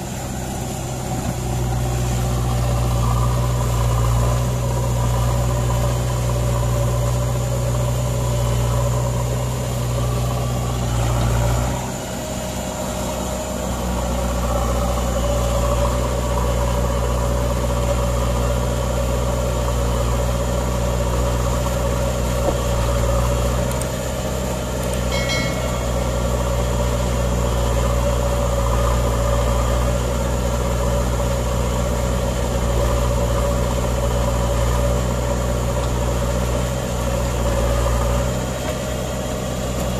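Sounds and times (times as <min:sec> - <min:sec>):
diesel engines running: 0:00.0 - 0:39.9
short high squeak: 0:25.1 - 0:26.9.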